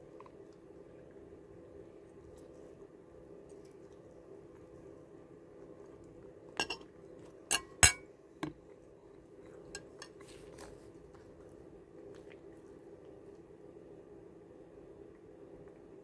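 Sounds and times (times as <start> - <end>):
fork clinking against plate: 6.6 - 6.8, 7.5 - 8.0, 9.7 - 10.1.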